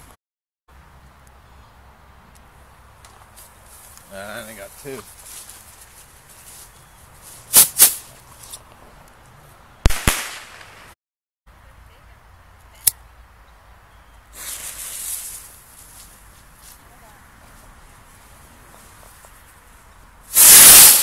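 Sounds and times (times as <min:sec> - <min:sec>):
firework rockets bursting: 0:07.5 - 0:08.1, 0:09.8 - 0:11.0, 0:14.3 - 0:15.6, 0:20.3 - 0:21.0
fuse hissing: 0:20.3 - 0:21.0.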